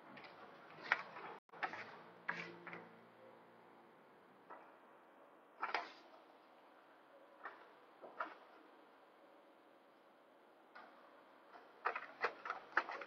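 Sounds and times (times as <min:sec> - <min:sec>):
paper rustling: 0:00.1 - 0:02.8.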